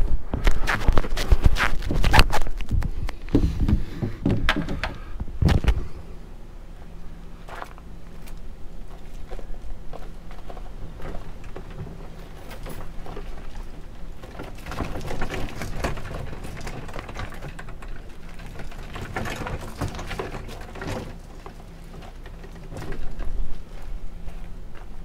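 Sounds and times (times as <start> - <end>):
gear knocks and rustles: 0.3 - 5.8, 7.4 - 25.0
footsteps on gravel: 0.5 - 4.2, 23.0 - 25.0.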